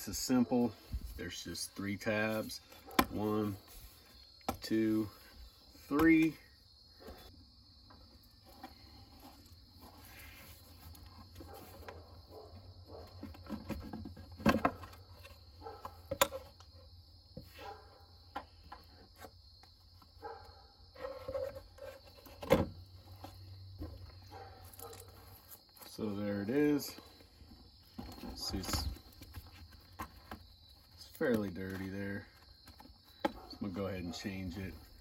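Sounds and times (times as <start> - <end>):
plastic rattling and scraping: 12.9 - 16.6, 21.0 - 25.5.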